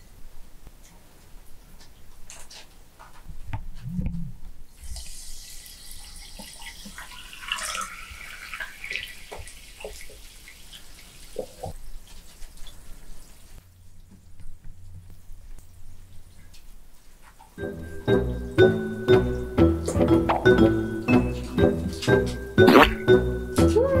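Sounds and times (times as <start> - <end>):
sparkling water pouring and fizzing: 4.7 - 20.0.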